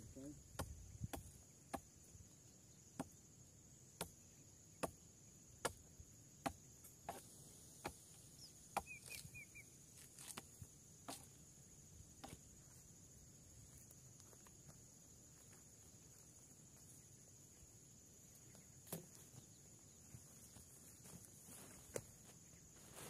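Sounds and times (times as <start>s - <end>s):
high insect drone: 0.0s - 23.0s
short bird chirps: 8.4s - 9.8s.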